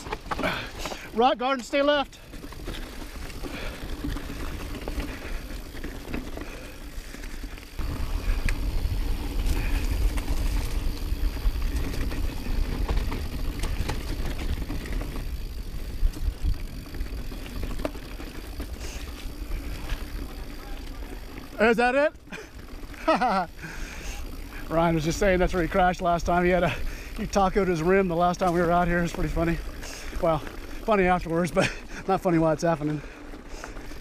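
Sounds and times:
bike knocks and rattles: 0:00.0 - 0:06.8, 0:07.7 - 0:21.2
tyres crunching over rocks: 0:00.0 - 0:23.0, 0:26.3 - 0:34.0.

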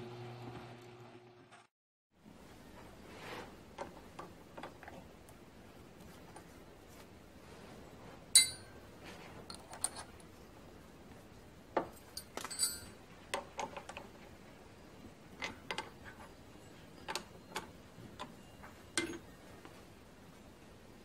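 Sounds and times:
light metallic clicks and clinks: 0:08.4 - 0:08.8, 0:11.8 - 0:13.0.

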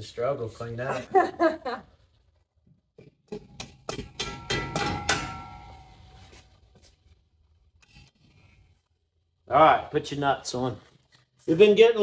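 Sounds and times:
hammer striking metal: 0:03.3 - 0:06.2
metal ringing: 0:03.3 - 0:06.3.

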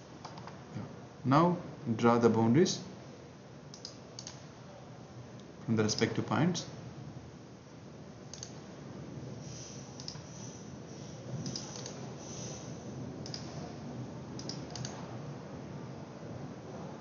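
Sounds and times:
low background hiss: 0:00.0 - 0:17.0
mouse and keyboard clicks: 0:00.2 - 0:00.6, 0:03.7 - 0:04.4, 0:08.3 - 0:08.6, 0:10.0 - 0:10.3, 0:11.4 - 0:12.6, 0:13.2 - 0:13.6, 0:14.4 - 0:15.0.

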